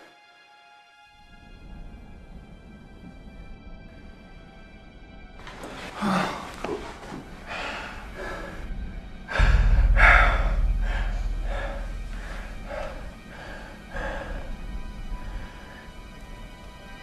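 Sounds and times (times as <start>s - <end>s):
person gasping heavily: 5.9s - 6.9s, 9.3s - 14.7s
deep low rumble: 7.3s - 17.0s.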